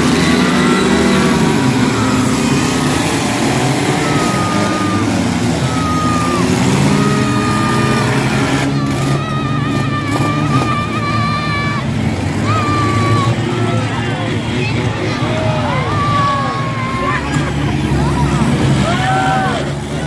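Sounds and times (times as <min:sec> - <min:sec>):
high drawn-out tones: 0:00.0 - 0:14.0
car engines revving: 0:00.0 - 0:20.0.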